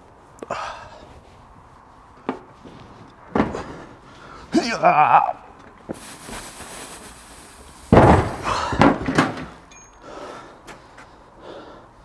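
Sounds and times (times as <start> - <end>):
metal tool chest thumping on table: 7.9 - 9.5.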